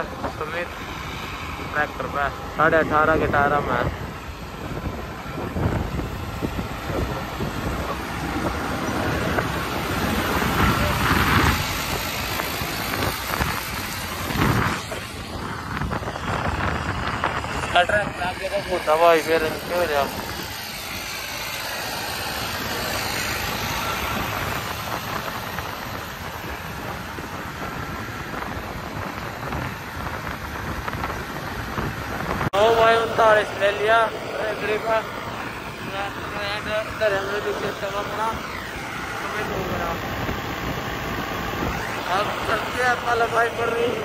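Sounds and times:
motorcycle engine rumble: 0:00.0 - 0:44.0
wind rushing over microphone: 0:00.0 - 0:44.0.

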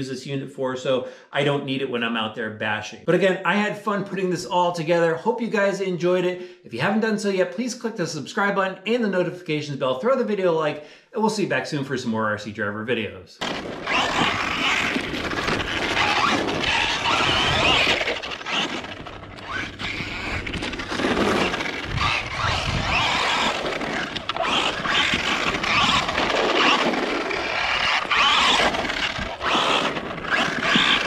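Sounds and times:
electric motor whine: 0:13.4 - 0:31.0
tires scraping on dirt: 0:13.4 - 0:31.0.

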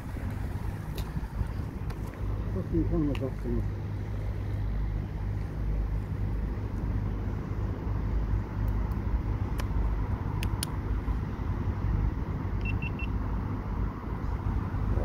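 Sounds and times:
road traffic rumble: 0:00.0 - 0:15.0
sharp clicks: 0:10.4 - 0:10.8
high-pitched beeps: 0:12.6 - 0:13.1.

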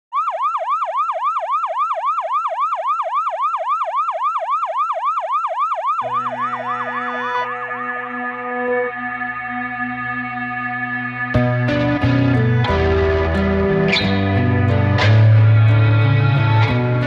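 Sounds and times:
siren yelping: 0:00.1 - 0:09.6
music: 0:06.0 - 0:17.0.

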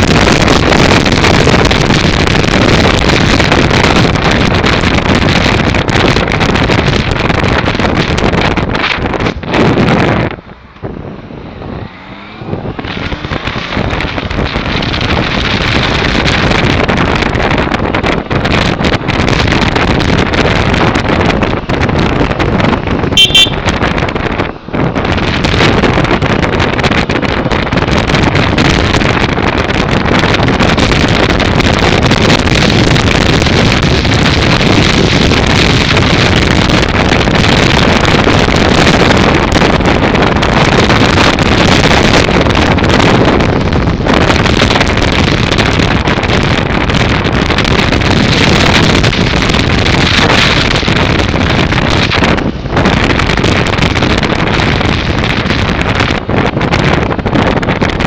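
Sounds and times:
wind rushing over microphone: 0:00.0 - 0:58.0
horn toot: 0:23.2 - 0:23.7.

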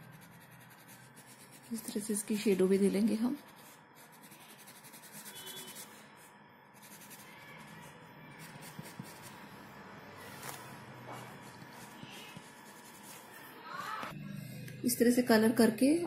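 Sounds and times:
pastel scratching on paper: 0:00.0 - 0:09.5, 0:10.2 - 0:13.4.

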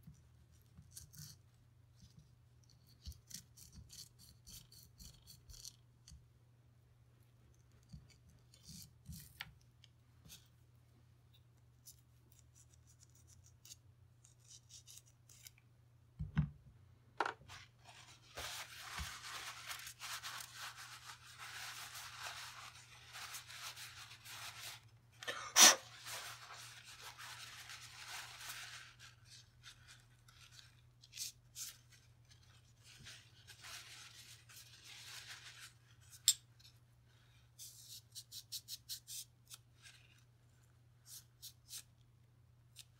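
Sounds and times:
pipe cleaner scratchy rubbing: 0:18.4 - 0:24.8.

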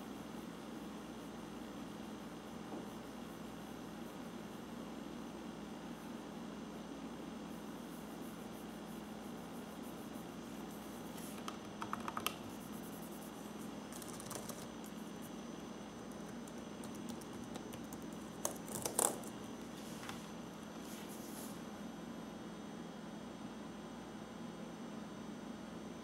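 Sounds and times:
steady low hum: 0:00.0 - 0:26.0
laptop keyboard clicks: 0:11.4 - 0:12.4, 0:13.9 - 0:14.7, 0:16.0 - 0:19.3.

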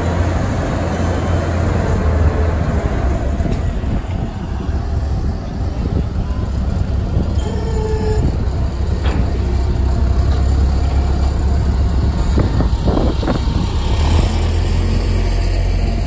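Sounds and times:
construction machinery engine rumbling: 0:00.0 - 0:16.0.

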